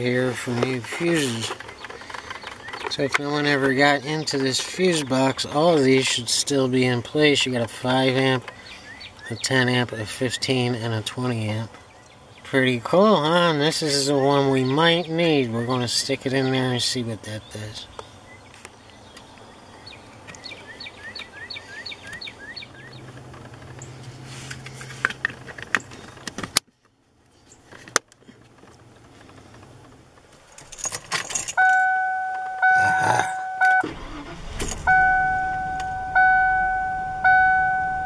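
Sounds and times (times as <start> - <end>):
keys jangling: 30.5 - 31.8
car warning chime: 31.6 - 38.0.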